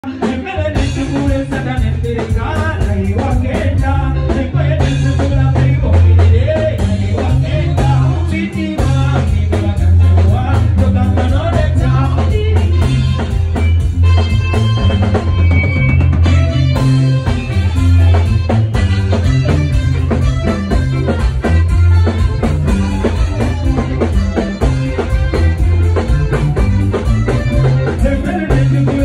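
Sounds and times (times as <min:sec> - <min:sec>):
man singing into microphone: 0:00.0 - 0:13.4, 0:27.8 - 0:29.0
live band playing: 0:00.0 - 0:29.0.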